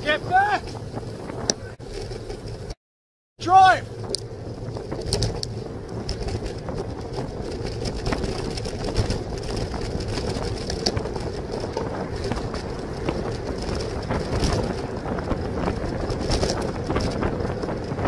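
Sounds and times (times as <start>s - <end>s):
wind buffeting microphone: 0.0s - 2.7s, 3.7s - 18.0s
bicycle tyre and road noise: 0.0s - 2.8s, 3.4s - 18.0s
small clicks and rattles: 4.0s - 18.0s.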